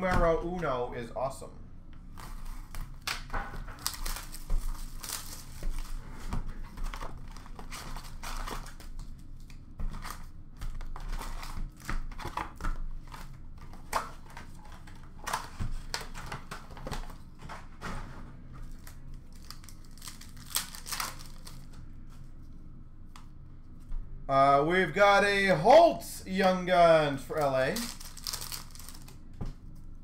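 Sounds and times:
foil wrappers crinkling: 0:02.1 - 0:17.3, 0:18.6 - 0:21.8, 0:27.3 - 0:29.2.

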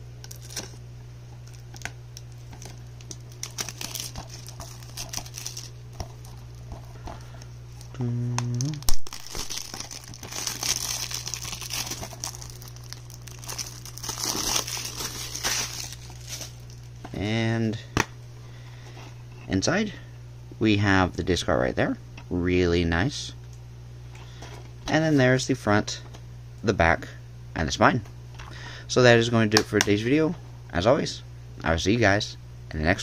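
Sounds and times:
plastic wrap crinkling: 0:00.2 - 0:00.8, 0:01.4 - 0:07.9, 0:08.5 - 0:17.0.

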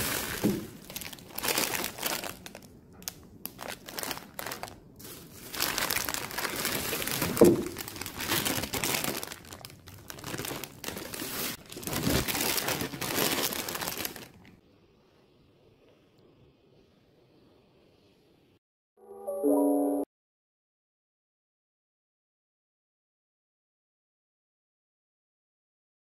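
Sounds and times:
plastic bags crinkling: 0:00.0 - 0:14.6.

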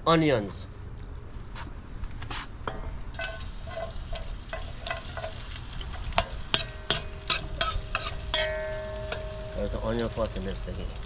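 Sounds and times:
metal spoon scraping pot: 0:02.7 - 0:09.3
onions sizzling in hot oil: 0:03.1 - 0:11.0.

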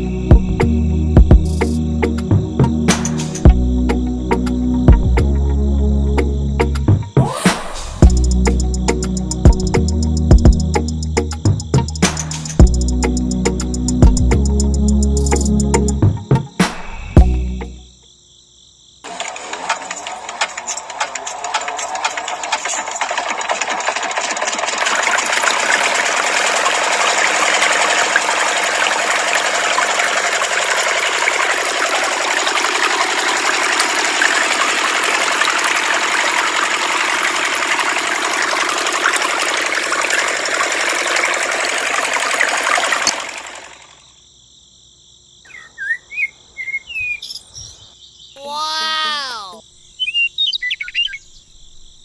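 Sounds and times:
small motor buzzing rattle: 0:19.0 - 0:44.0
water jet splashing into tank: 0:19.1 - 0:43.9
bird chirps: 0:45.4 - 0:52.0.

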